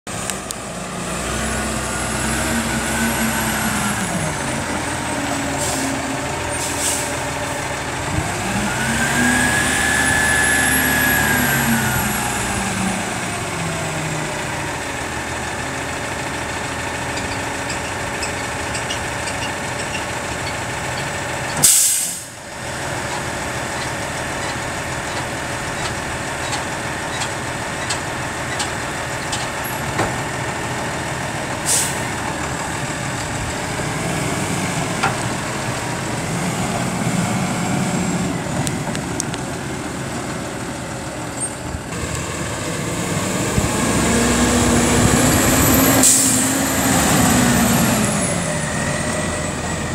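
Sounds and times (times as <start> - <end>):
diesel truck engine idling: 0.2 - 49.9
air brake hiss: 5.6 - 6.0, 6.6 - 7.2, 21.6 - 22.4, 31.6 - 32.0, 46.0 - 46.5.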